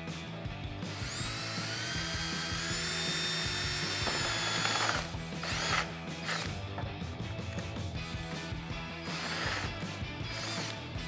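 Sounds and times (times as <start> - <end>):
cordless drill boring plastic: 1.0 - 6.6, 9.0 - 10.8.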